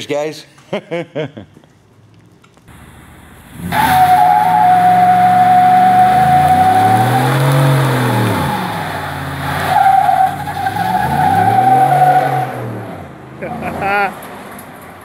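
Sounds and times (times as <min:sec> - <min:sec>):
engine revving: 0:03.3 - 0:14.2
tyres squealing: 0:03.7 - 0:12.8.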